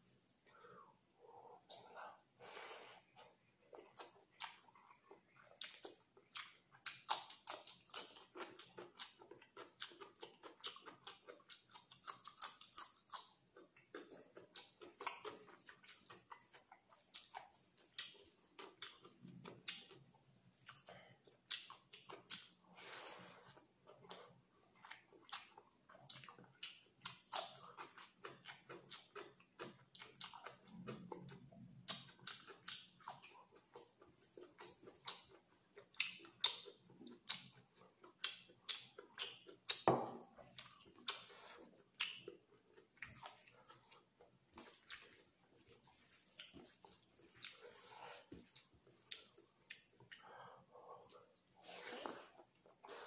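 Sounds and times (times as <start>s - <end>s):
wet chewing and lip smacking: 3.6s - 22.7s, 23.8s - 53.0s.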